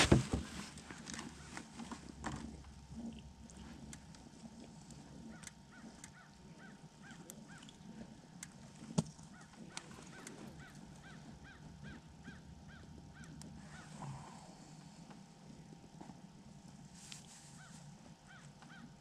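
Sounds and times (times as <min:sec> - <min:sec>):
faint clicks: 0:03.8 - 0:06.4
faint bird calling: 0:04.9 - 0:08.4, 0:09.2 - 0:15.5, 0:17.4 - 0:19.0.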